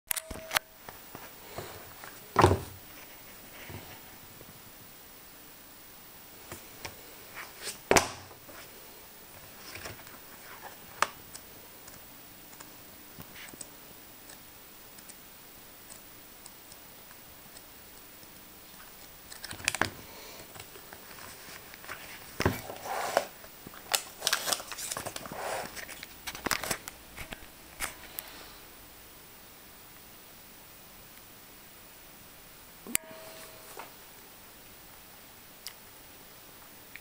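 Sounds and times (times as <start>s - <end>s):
book pages rustling: 9.4s - 11.2s, 20.6s - 28.0s.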